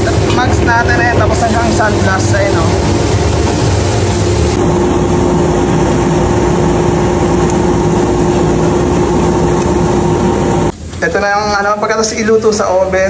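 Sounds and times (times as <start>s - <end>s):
sandblaster hiss: 0.0s - 4.6s
constant hum: 0.0s - 13.0s.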